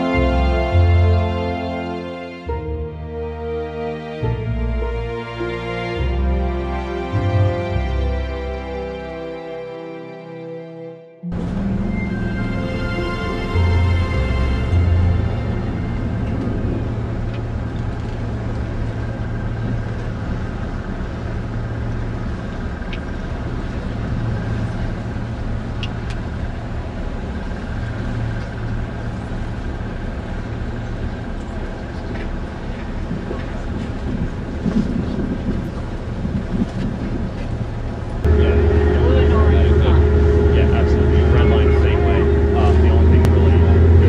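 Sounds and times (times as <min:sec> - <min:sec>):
boat engine drone: 0:00.0 - 0:44.0
steady hum: 0:35.4 - 0:44.0.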